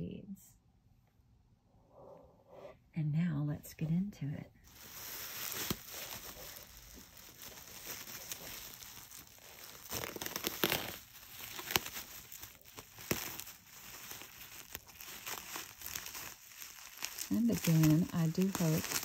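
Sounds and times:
bubble wrap crackles: 0:04.6 - 0:19.0
bubble wrap crinkling: 0:04.6 - 0:19.0.

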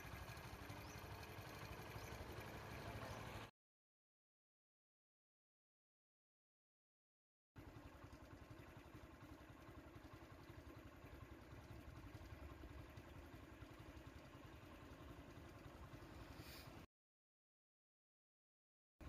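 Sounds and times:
vehicle engine idling: 0:00.0 - 0:03.5, 0:07.6 - 0:16.9.

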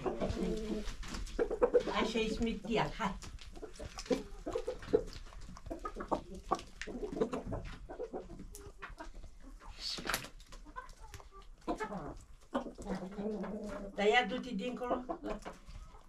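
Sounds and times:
hens clucking: 0:00.0 - 0:16.0.

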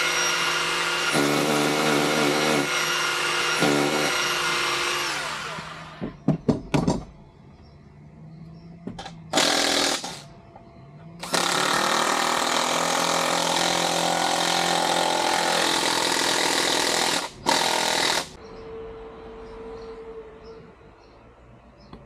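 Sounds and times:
handheld power tool running: 0:00.0 - 0:06.0.

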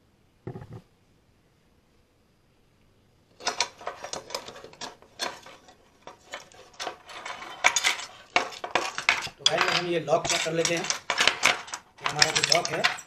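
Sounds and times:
metal lock parts clinking: 0:03.4 - 0:13.0.

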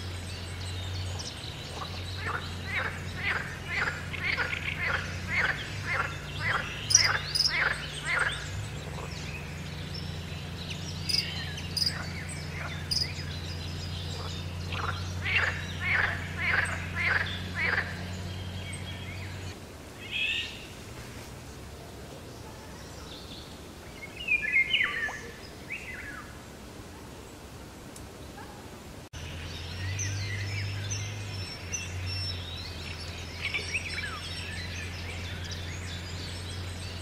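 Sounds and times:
frogs croaking: 0:00.0 - 0:20.7
low steady hum: 0:00.0 - 0:37.0.

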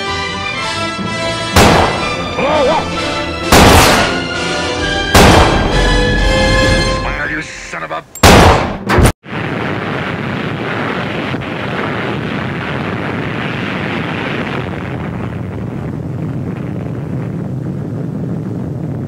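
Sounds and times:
explosion rumble: 0:01.6 - 0:02.4, 0:05.0 - 0:06.7, 0:08.2 - 0:19.0.

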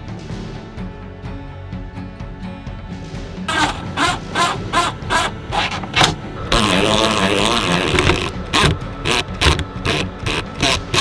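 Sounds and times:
background music with steady beat: 0:00.0 - 0:11.0
cordless drill driving screw into wood: 0:03.5 - 0:06.2, 0:06.9 - 0:11.0.

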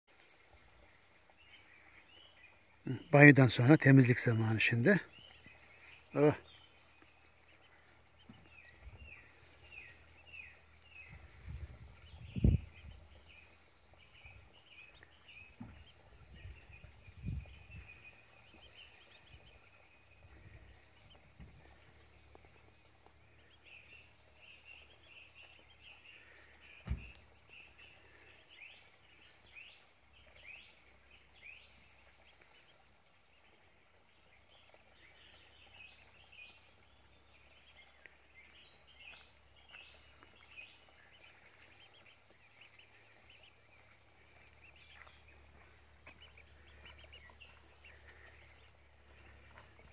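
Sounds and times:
small birds chirping: 0:00.0 - 0:49.9
low thump: 0:26.8 - 0:27.2.

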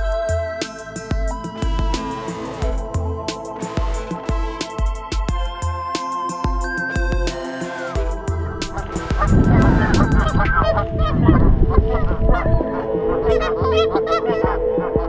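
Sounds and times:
geese honking: 0:07.3 - 0:15.0.

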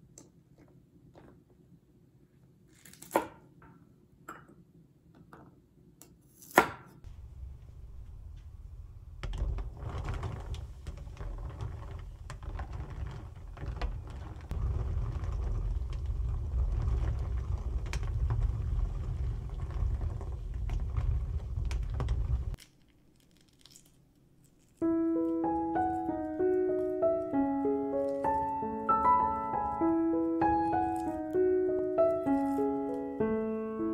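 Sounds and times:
water boiling in a pot: 0:07.3 - 0:22.6.

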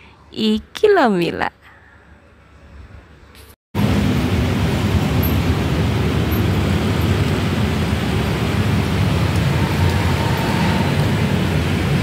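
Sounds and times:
road traffic rumble: 0:03.8 - 0:12.0.

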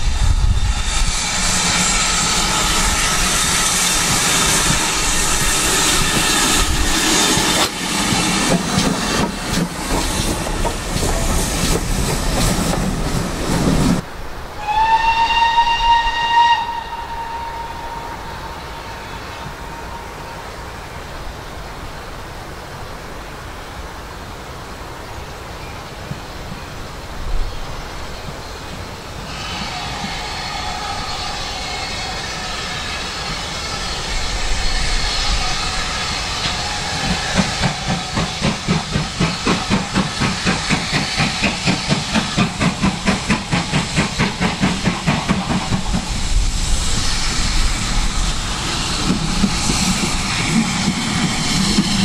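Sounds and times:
hiss of steam: 0:00.0 - 0:14.0, 0:14.6 - 0:52.0
steam locomotive exhaust beats: 0:00.0 - 0:14.0, 0:28.2 - 0:52.0.

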